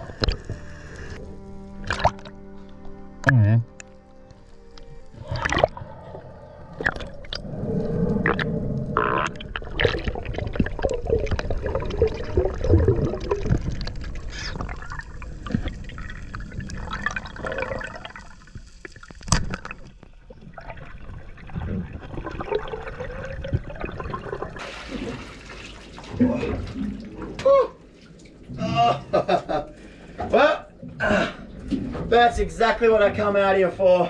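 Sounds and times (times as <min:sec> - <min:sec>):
underwater rushing and bubbling: 0:00.0 - 0:01.2, 0:01.8 - 0:02.4, 0:05.1 - 0:28.7.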